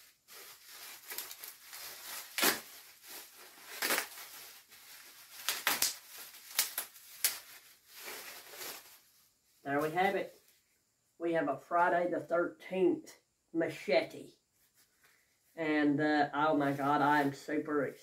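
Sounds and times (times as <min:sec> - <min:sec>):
plastic packaging crinkling: 0:00.0 - 0:09.5
plastic wrap crackles: 0:00.0 - 0:10.4.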